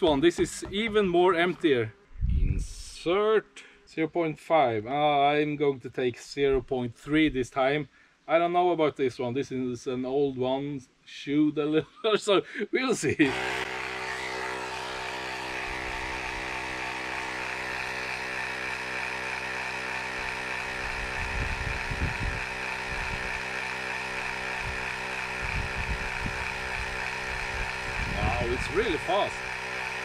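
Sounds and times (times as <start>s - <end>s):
tyre pump compressor running: 0.0s - 1.6s, 13.2s - 30.0s.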